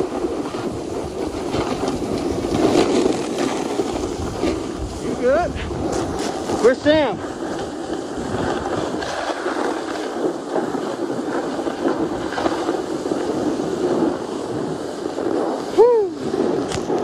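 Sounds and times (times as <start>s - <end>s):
snowboard scraping on snow: 0.0s - 17.0s
wind on microphone: 0.0s - 17.0s
person shouting: 15.8s - 16.2s.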